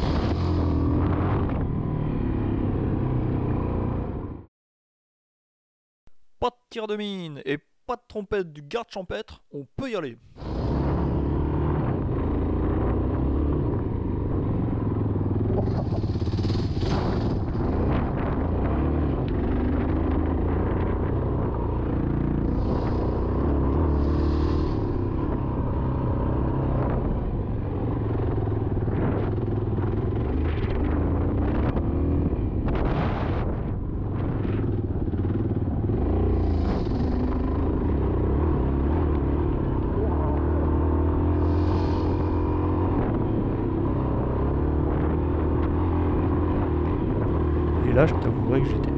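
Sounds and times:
rushes of noise: 0:10.2 - 0:48.9.

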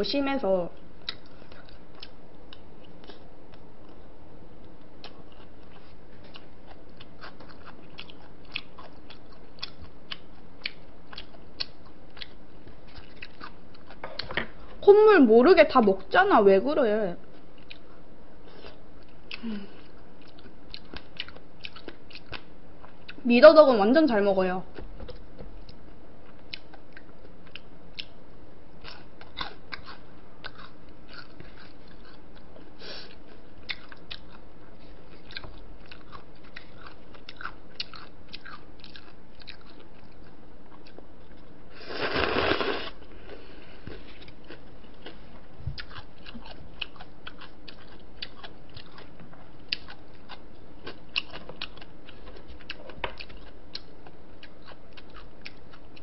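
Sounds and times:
chewing and crunching: 0:00.8 - 0:14.8, 0:17.3 - 0:23.2, 0:28.8 - 0:41.5, 0:43.2 - 0:56.0
loud noodle slurp: 0:41.8 - 0:43.0.

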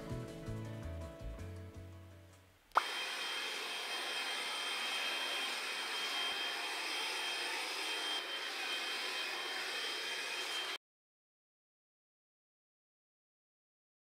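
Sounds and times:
stick vacuum running: 0:02.8 - 0:10.8.

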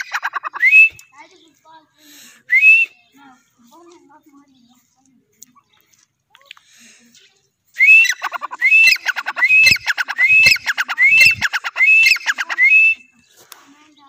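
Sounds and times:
francolin calling: 0:07.8 - 0:13.2.

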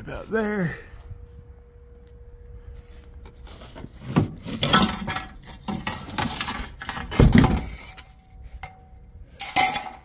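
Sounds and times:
metallic clanks and rattles: 0:04.3 - 0:10.0.

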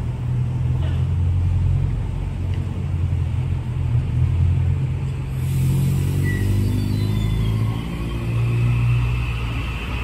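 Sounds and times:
electric train humming: 0:04.4 - 0:10.0.

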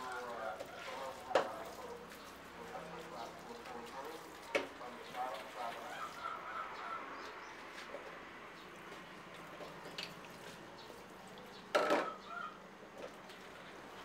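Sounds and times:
tap water splashing into sink: 0:00.6 - 0:01.8.

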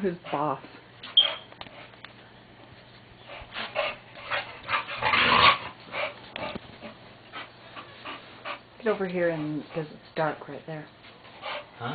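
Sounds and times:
dog huffing and growling: 0:03.5 - 0:06.6.

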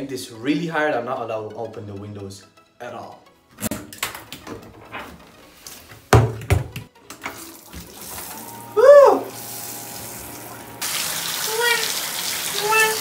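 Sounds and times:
shower spray hissing: 0:07.4 - 0:13.0
rising and falling tone: 0:08.3 - 0:10.8.

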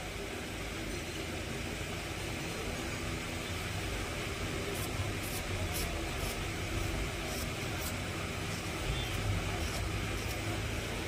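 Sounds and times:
low hum and hiss: 0:00.0 - 0:11.0.

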